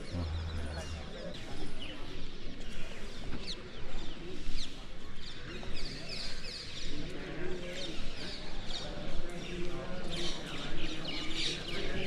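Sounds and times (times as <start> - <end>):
birds chirping: 0.0 - 1.9
murmur of voices: 0.0 - 12.0.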